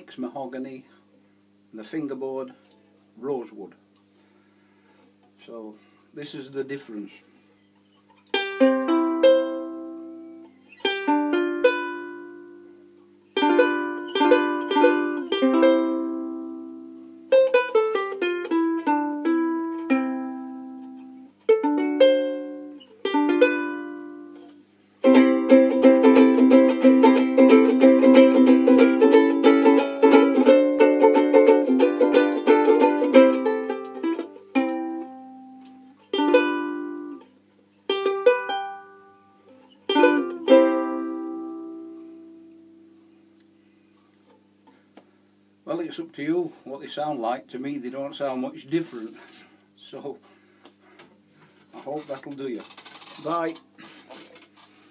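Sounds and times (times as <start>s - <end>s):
ukulele chords and picked notes: 8.3s - 37.3s, 37.9s - 42.8s
fast ukulele strumming: 25.0s - 35.2s, 39.9s - 41.1s.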